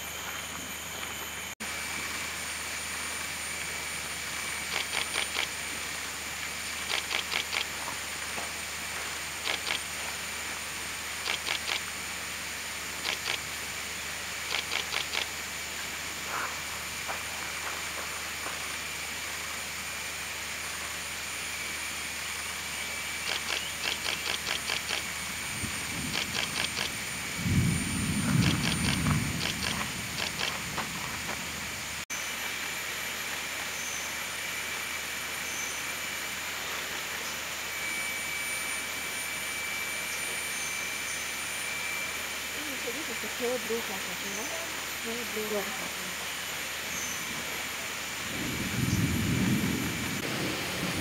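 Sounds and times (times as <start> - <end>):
high insect drone: 0.0 - 51.0
rapid high ticking call: 4.6 - 5.6, 6.8 - 7.8, 9.4 - 9.9, 11.1 - 11.9, 12.9 - 13.6, 14.4 - 15.4, 23.2 - 25.2, 26.0 - 27.0, 28.3 - 30.6.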